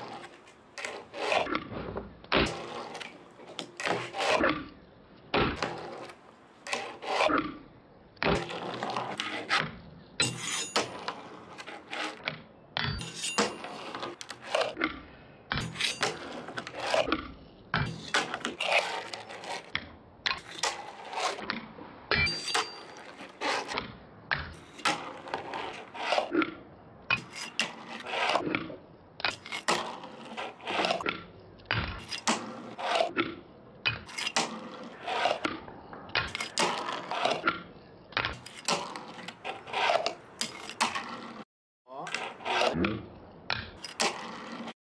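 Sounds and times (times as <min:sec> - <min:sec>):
small wheels rolling on wood: 0:00.0 - 0:04.5, 0:05.6 - 0:07.4, 0:08.2 - 0:09.8, 0:10.4 - 0:12.3, 0:15.6 - 0:17.3, 0:17.9 - 0:21.7, 0:22.4 - 0:41.4, 0:42.0 - 0:44.8.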